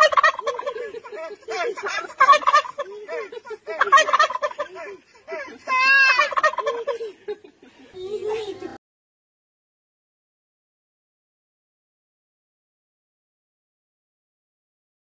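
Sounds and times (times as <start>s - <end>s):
turkey gobbling: 0.0s - 1.0s, 1.8s - 2.9s, 3.8s - 4.7s, 5.8s - 7.0s.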